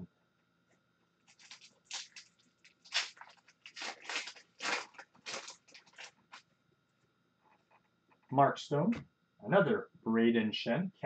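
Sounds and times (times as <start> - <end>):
foil wrapper crinkling: 1.3 - 6.4.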